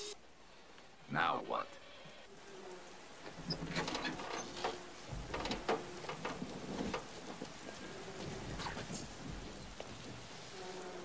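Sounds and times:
steady rain: 0:00.0 - 0:01.6, 0:02.2 - 0:11.0
metallic clanks and crackles: 0:03.2 - 0:10.2.

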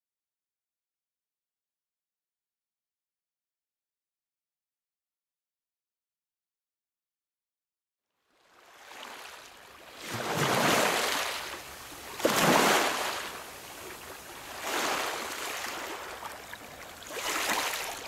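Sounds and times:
waves washing onto pebble shore: 0:10.0 - 0:18.0.

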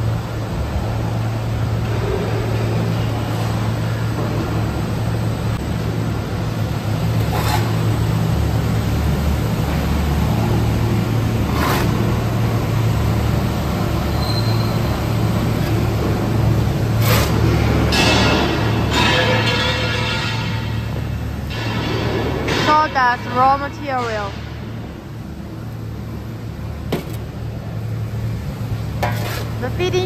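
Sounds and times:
furnace machinery humming: 0:00.0 - 0:30.0
shovel scraping: 0:07.2 - 0:07.8, 0:11.5 - 0:12.1, 0:17.0 - 0:17.6, 0:29.0 - 0:29.7.

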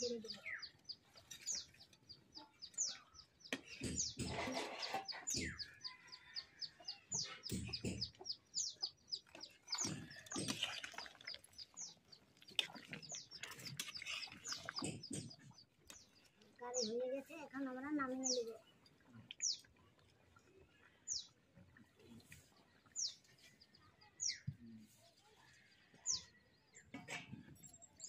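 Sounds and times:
chickens clucking: 0:00.0 - 0:16.0
small birds chirping: 0:00.0 - 0:28.0.

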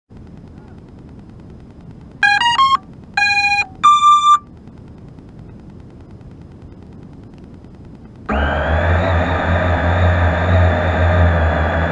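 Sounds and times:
steady background rush: 0:00.1 - 0:08.3
drone motor startup beeps: 0:02.2 - 0:04.5, 0:08.3 - 0:11.9.

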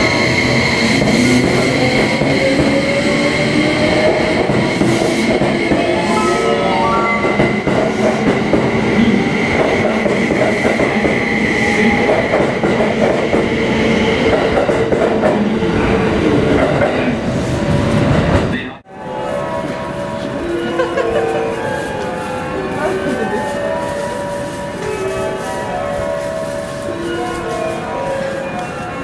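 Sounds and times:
steady high tone: 0:05.7 - 0:08.7.

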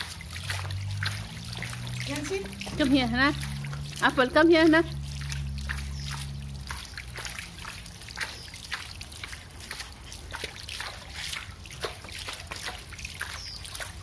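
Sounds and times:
low steady rumble: 0:00.0 - 0:09.5
pool water drips and splashes: 0:00.0 - 0:14.0.

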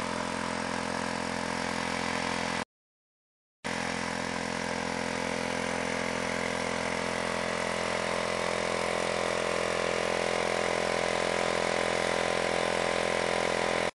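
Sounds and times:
scooter engine idling: 0:03.7 - 0:13.9.

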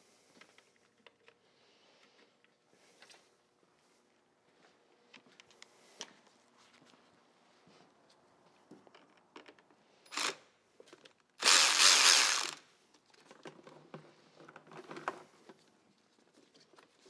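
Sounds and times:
electric ratchet spinning: 0:10.1 - 0:10.4, 0:11.4 - 0:12.6.

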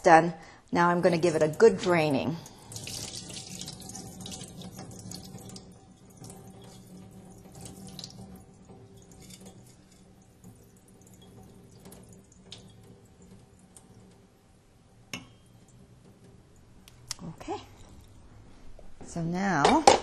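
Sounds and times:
water pouring into steel sink: 0:00.8 - 0:16.8.

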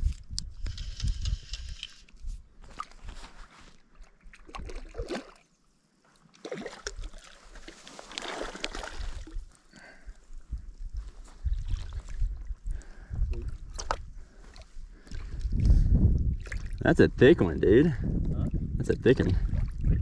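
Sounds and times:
water sloshing around net: 0:02.6 - 0:05.5, 0:06.1 - 0:09.6
fish splashing in water: 0:06.4 - 0:09.3.

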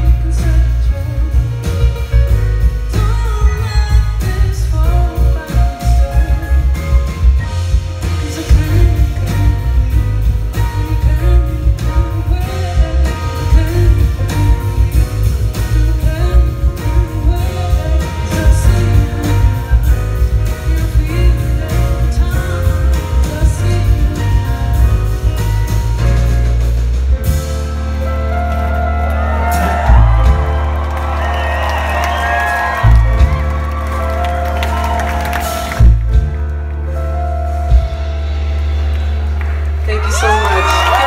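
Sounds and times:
woman singing: 0:00.0 - 0:02.1, 0:02.8 - 0:07.2, 0:08.0 - 0:25.9
live band playing: 0:00.0 - 0:41.0.

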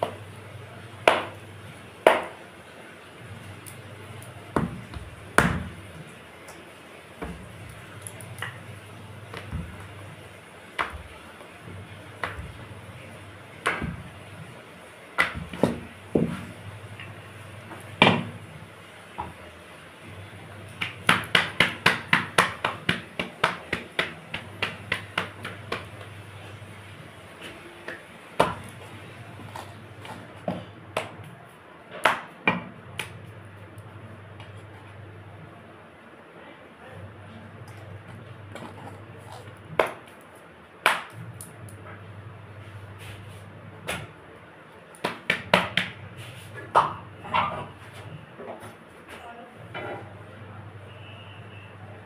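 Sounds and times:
hands slapping dough: 0:01.0 - 0:02.5, 0:03.4 - 0:18.5, 0:19.1 - 0:19.5, 0:20.1 - 0:34.9, 0:37.7 - 0:41.9, 0:42.9 - 0:44.2, 0:44.9 - 0:48.8.

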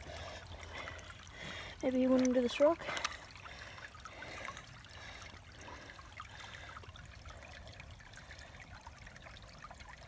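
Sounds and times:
creek water trickling over rocks: 0:00.0 - 0:10.0.

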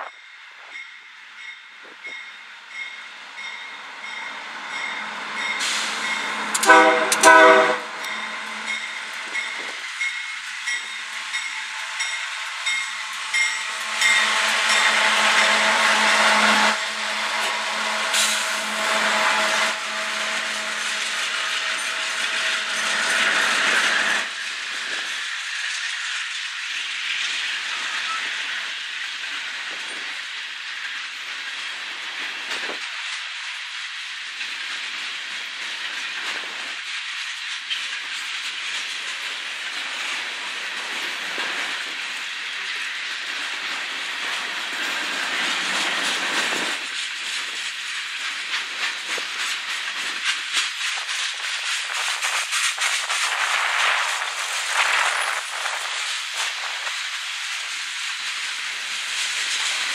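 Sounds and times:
steel wheels rolling on rails: 0:01.4 - 0:59.9
locomotive horn blasts: 0:06.5 - 0:08.5.

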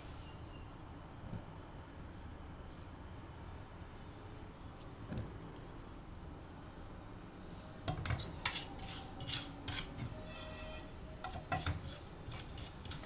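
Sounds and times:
spatula scraping seeds in a pan: 0:07.9 - 0:13.0.

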